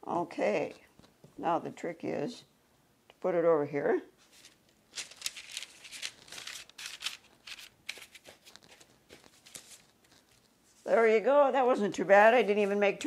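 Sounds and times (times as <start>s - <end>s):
parchment paper crinkling: 4.2s - 11.0s.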